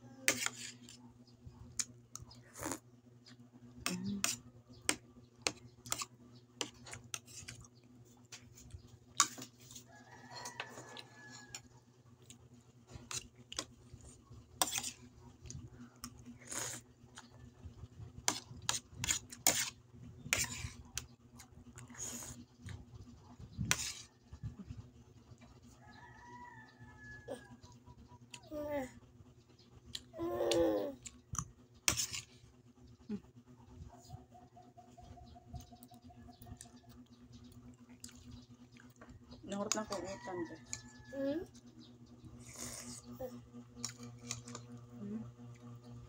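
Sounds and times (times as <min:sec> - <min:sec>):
rooster crowing: 0:09.8 - 0:11.7, 0:25.7 - 0:27.6, 0:39.8 - 0:41.4.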